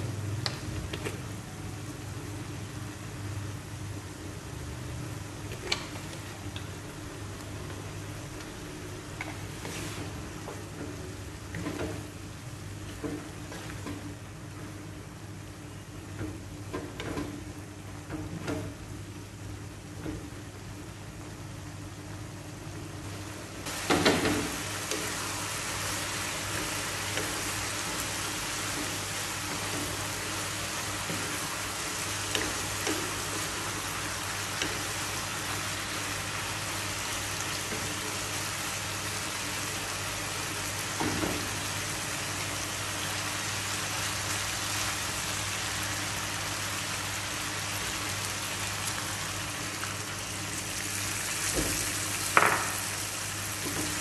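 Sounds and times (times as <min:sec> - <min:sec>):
meat sizzling in a pan: 0:23.7 - 0:54.0.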